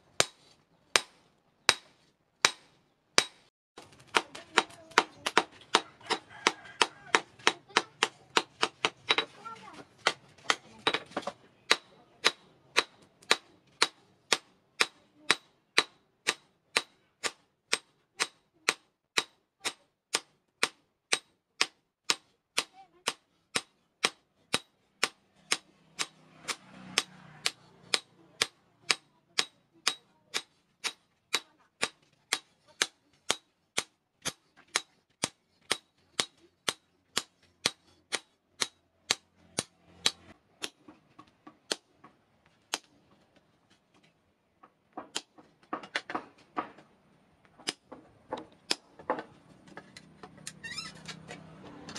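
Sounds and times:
hammer striking metal on anvil: 0:00.2 - 0:03.5, 0:10.0 - 0:40.8.

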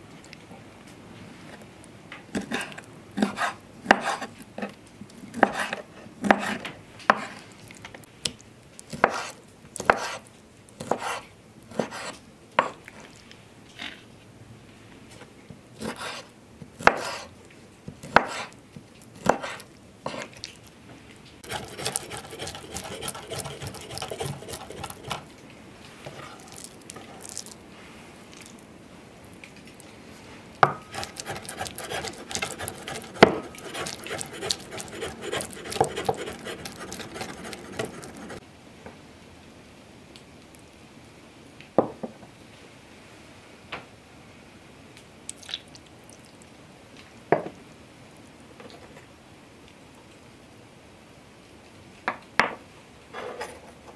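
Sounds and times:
knife chopping on wooden board: 0:21.4 - 0:25.2, 0:30.6 - 0:38.4.

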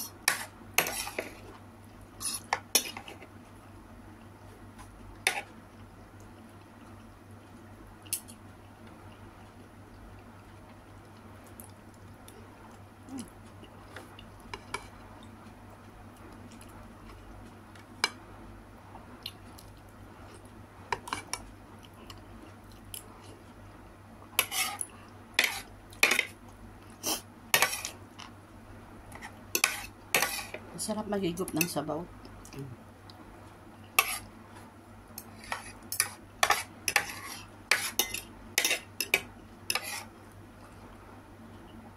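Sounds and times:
cutlery clinking on a plate: 0:35.5 - 0:39.9.

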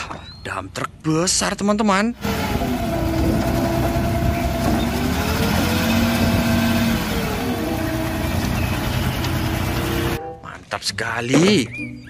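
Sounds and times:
diesel engine running under load: 0:02.2 - 0:10.2.

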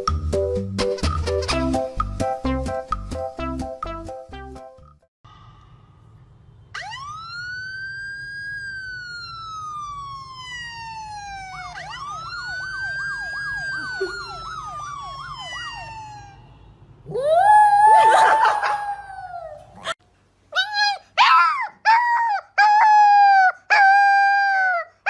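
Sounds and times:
siren wailing from phone speaker: 0:06.7 - 0:16.7.

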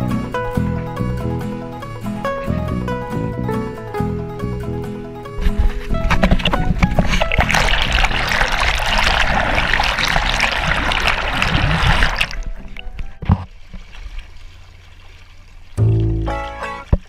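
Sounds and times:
music playing: 0:00.0 - 0:08.7, 0:15.8 - 0:17.0
water rushing and splashing: 0:05.4 - 0:17.0.

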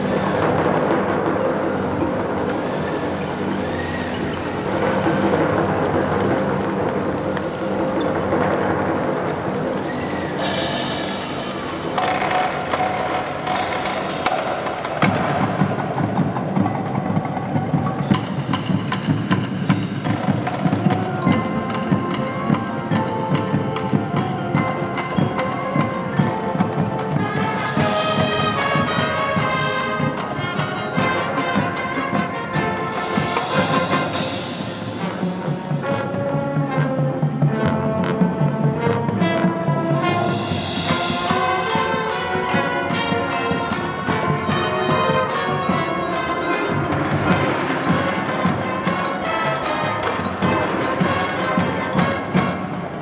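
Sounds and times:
marching band playing: 0:00.0 - 0:53.0
rapid percussion strokes: 0:00.0 - 0:53.0.

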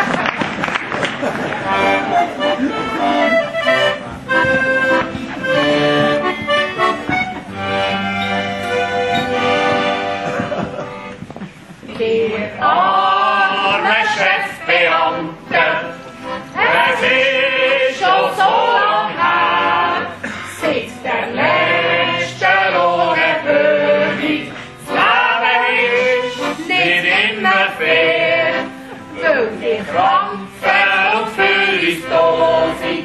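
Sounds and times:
tuba: 0:01.6 - 0:11.2
group singing a yodel song: 0:11.9 - 0:33.0.

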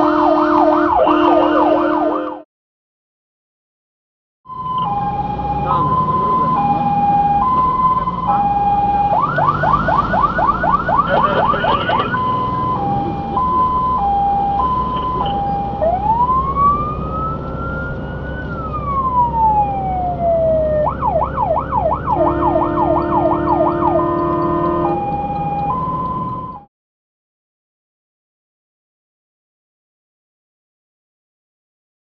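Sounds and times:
low horn-like tone: 0:00.0 - 0:02.4, 0:22.2 - 0:25.1
fire engine siren: 0:00.0 - 0:02.5, 0:04.5 - 0:26.7
truck engine rumbling: 0:04.5 - 0:26.7.

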